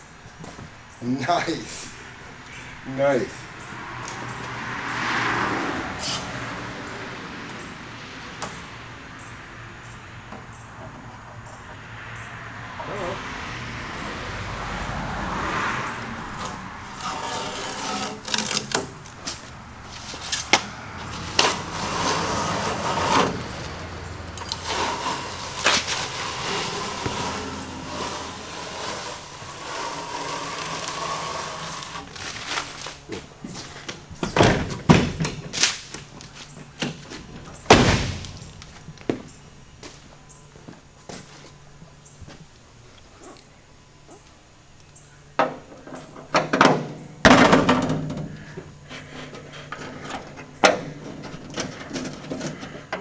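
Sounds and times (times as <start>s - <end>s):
tape and paper tearing: 16.4s - 23.8s, 24.4s - 33.0s.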